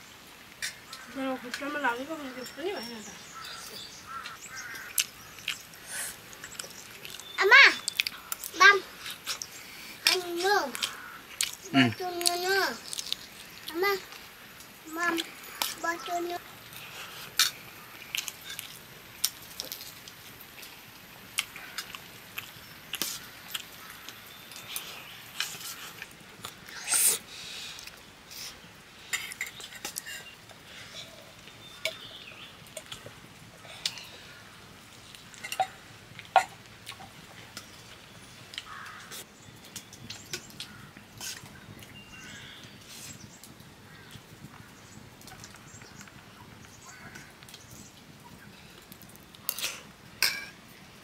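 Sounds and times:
spoons clinking on steel plates: 0:50.2 - 0:50.6.

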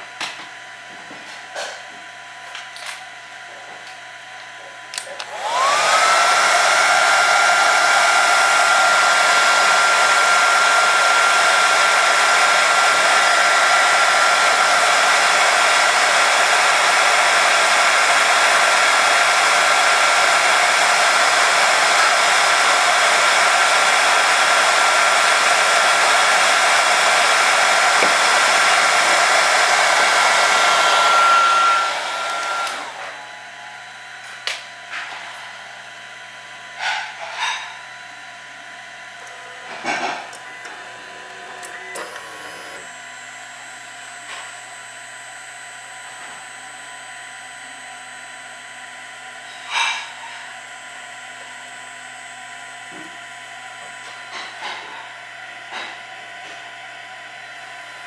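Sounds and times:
heat gun motor whine: 0:00.2 - 0:58.0.

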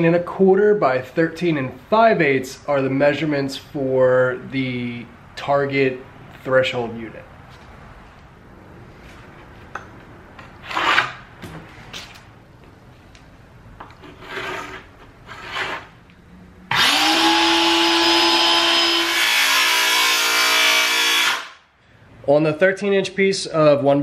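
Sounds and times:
circular saw cutting wood: 0:16.7 - 0:21.6.

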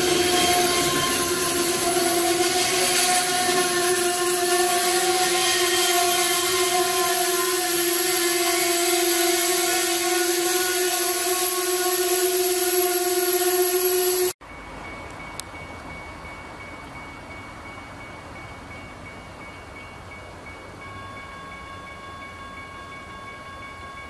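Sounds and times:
train wheels on rails: 0:00.0 - 0:24.0.

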